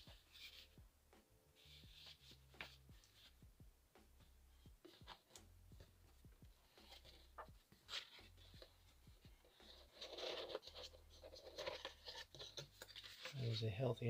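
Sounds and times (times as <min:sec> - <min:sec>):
paper and cardboard rustling: 0:04.8 - 0:05.4, 0:06.6 - 0:13.8.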